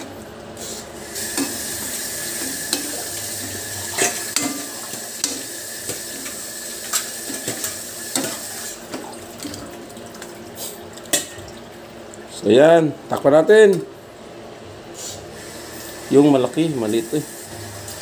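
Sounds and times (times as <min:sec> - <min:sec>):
pan sizzling: 0:00.0 - 0:09.0.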